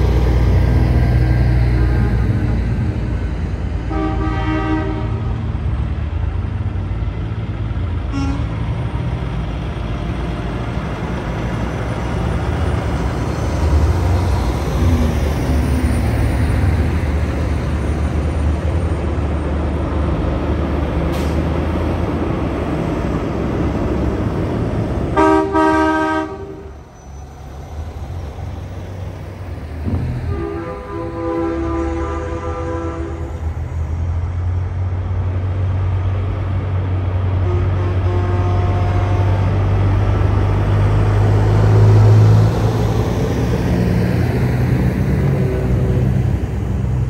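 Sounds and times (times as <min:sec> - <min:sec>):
heavy trucks passing: 0:00.0 - 0:47.0
air horn blast: 0:03.9 - 0:05.4, 0:08.1 - 0:08.6, 0:25.2 - 0:26.7, 0:30.2 - 0:33.4, 0:37.4 - 0:39.5.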